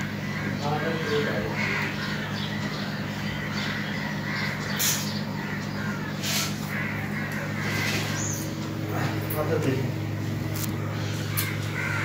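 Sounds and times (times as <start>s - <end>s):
crows cawing: 0.0s - 12.0s
steady low hum: 0.0s - 12.0s.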